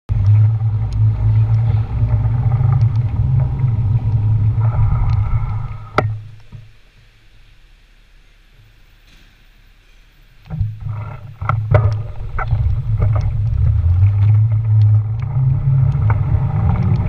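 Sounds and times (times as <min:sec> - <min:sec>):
wind and road noise: 0:00.1 - 0:06.8, 0:10.5 - 0:17.0.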